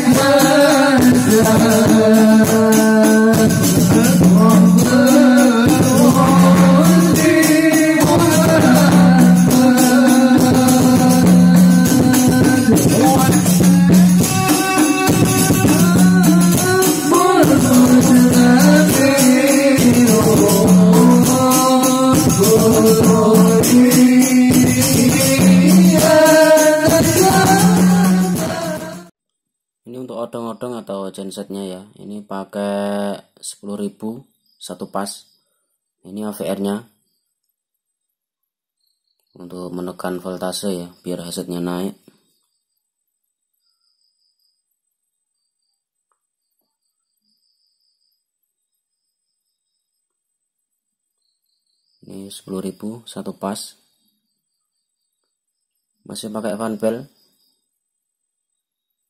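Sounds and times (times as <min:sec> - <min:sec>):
frame drums rhythm: 0:00.0 - 0:29.1
men singing devotional verses: 0:00.0 - 0:29.1.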